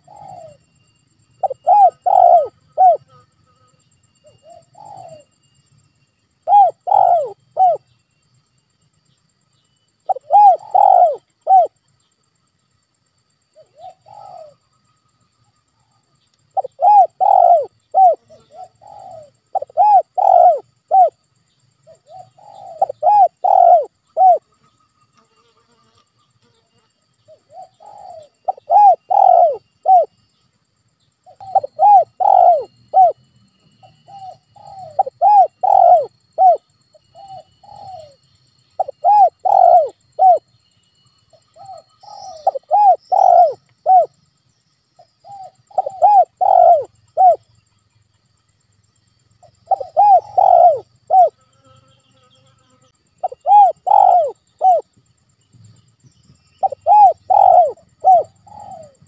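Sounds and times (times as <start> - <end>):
dove cooing: 0.0 - 0.6, 1.4 - 3.2, 4.3 - 5.3, 6.4 - 7.9, 10.1 - 11.8, 13.6 - 14.6, 16.6 - 21.2, 21.8 - 24.4, 27.3 - 30.2, 31.3 - 33.2, 33.8 - 38.2, 38.8 - 40.5, 41.5 - 44.2, 45.2 - 47.5, 49.4 - 51.4, 53.2 - 54.9, 56.6 - 59.0.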